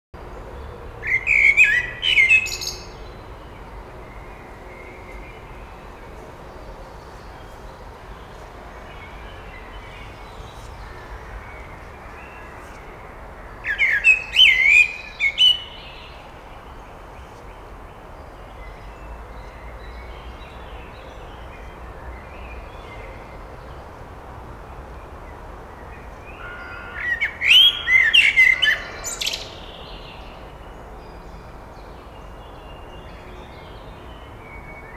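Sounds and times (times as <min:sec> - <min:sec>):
blackbird singing: 0:01.0 - 0:03.2, 0:13.6 - 0:16.2, 0:26.4 - 0:30.4.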